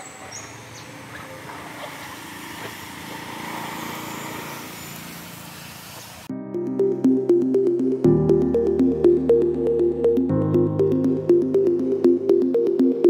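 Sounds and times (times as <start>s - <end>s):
distant motor running: 0.0s - 6.3s
outdoor ambience: 0.0s - 6.3s.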